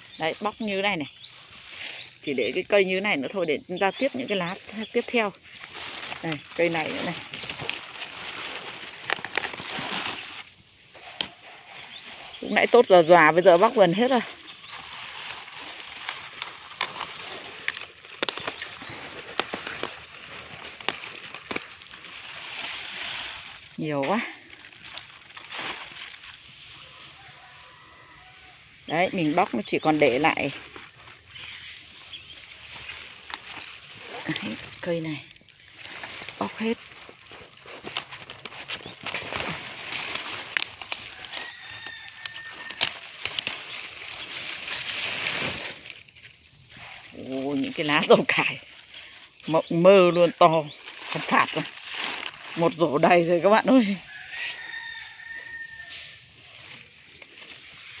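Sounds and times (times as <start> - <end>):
leaves rustling: 0.0 - 58.0
leaves snapped off stalks: 4.6 - 12.8, 14.3 - 26.8, 29.2 - 58.0.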